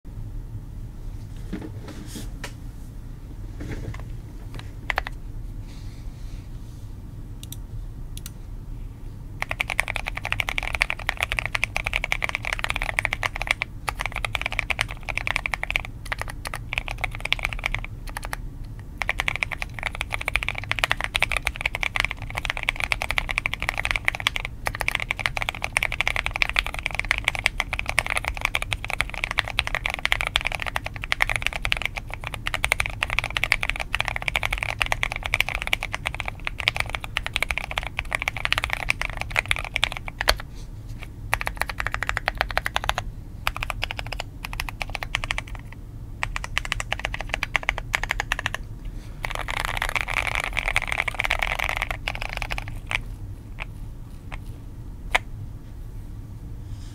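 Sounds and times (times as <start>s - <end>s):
mechanical keyboard typing: 4.9s - 5.2s, 9.4s - 40.4s, 41.3s - 48.6s, 49.2s - 53.7s.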